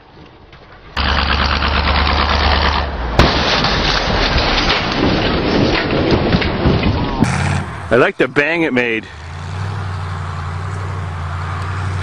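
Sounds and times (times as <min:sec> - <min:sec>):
car engine running hard: 0:01.0 - 0:02.9, 0:07.2 - 0:08.1, 0:09.0 - 0:12.0
loud rushing rumble: 0:01.0 - 0:12.0.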